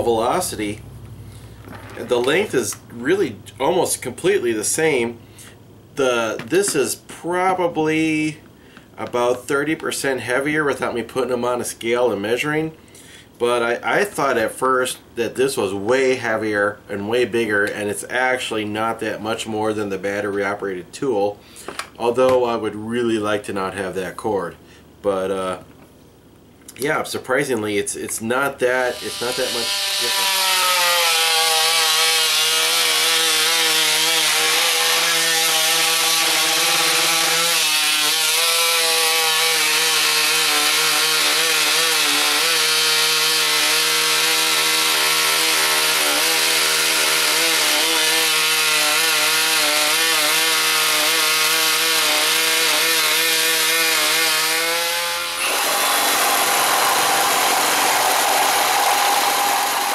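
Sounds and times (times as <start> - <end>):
oscillating tool cutting wood: 28.8 - 59.9
cordless oscillating tool cutting: 28.9 - 59.9.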